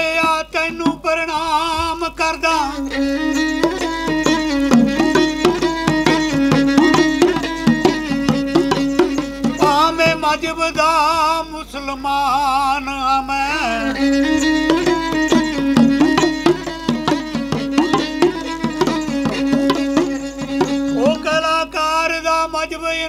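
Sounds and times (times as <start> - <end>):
man singing: 0.0 - 23.0
hand drum strokes: 2.9 - 10.2, 14.3 - 21.5
bowed string drone: 14.0 - 21.3.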